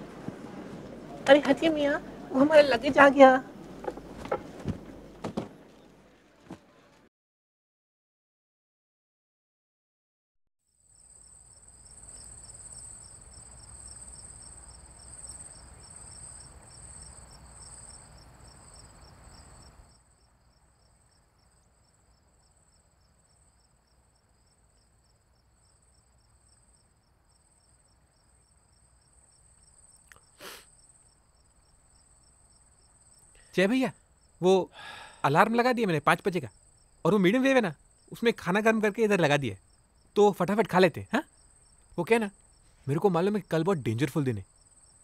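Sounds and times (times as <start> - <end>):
low rushing wash: 0.0 - 2.8
crickets chirping: 0.0 - 6.1, 10.7 - 45.0
short knock: 3.8 - 5.6.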